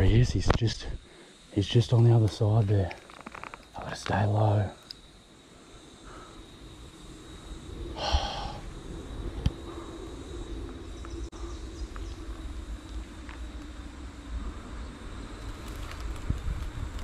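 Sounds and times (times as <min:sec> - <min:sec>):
breathy exhale: 0:05.6 - 0:06.6, 0:08.0 - 0:08.8.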